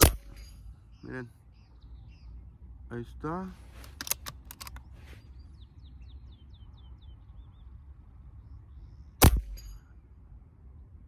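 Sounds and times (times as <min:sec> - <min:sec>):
air rifle shot: 0:00.0 - 0:00.4, 0:09.2 - 0:09.8
bird chirping: 0:00.0 - 0:03.4, 0:04.5 - 0:10.2.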